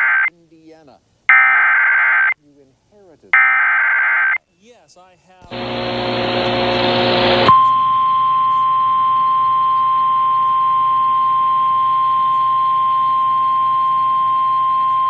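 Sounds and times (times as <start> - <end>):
electronic alert tone: 7.5 - 15.0.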